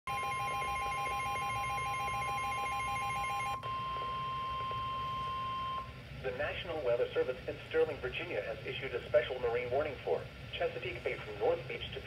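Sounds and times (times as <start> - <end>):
steady high alarm beep: 0.1 - 5.9.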